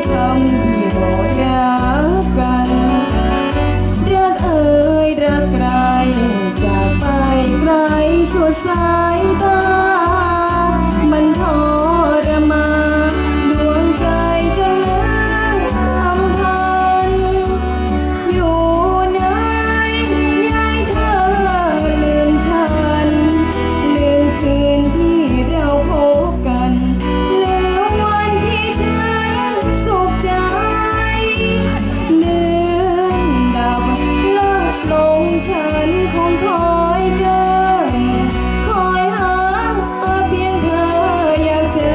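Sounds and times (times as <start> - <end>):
backing music with bass beat: 0.0 - 4.6
girl singing into a microphone: 0.0 - 41.9.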